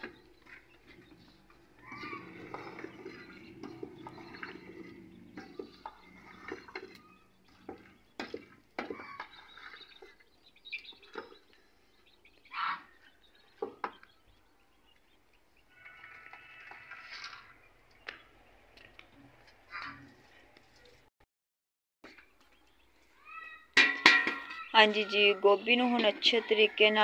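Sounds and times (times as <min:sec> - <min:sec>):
spoon stirring vegetables in pot: 0:00.0 - 0:11.5
spoon knocking against pot: 0:23.8 - 0:24.6.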